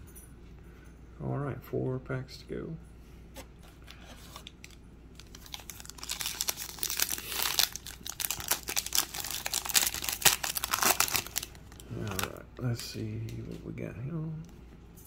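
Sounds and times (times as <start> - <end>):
foil wrapper crinkling and tearing: 4.3 - 12.4.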